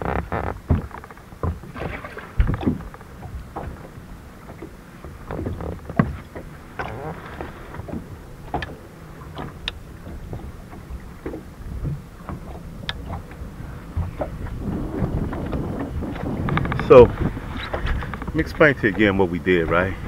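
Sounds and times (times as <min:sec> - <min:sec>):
water lapping against boat hull: 0:00.0 - 0:20.0
wind rumble on microphone: 0:00.0 - 0:20.0
small knocks and clicks: 0:02.4 - 0:13.4.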